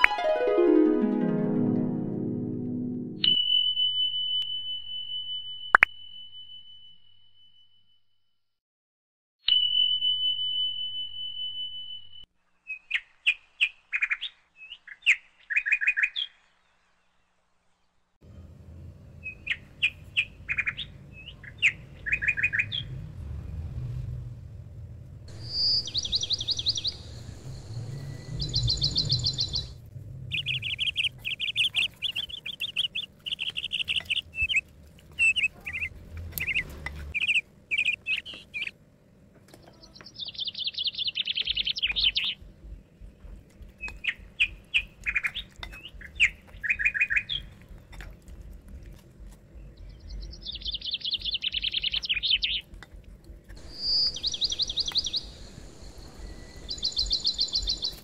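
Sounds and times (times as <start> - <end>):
songbirds chirping and trilling: 9.5 - 18.2, 19.1 - 24.0, 25.3 - 58.0.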